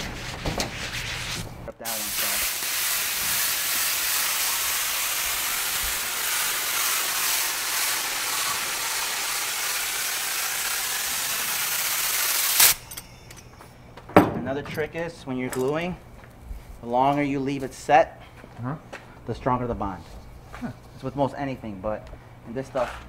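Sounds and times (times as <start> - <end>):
spray gun hissing: 1.8 - 13.0.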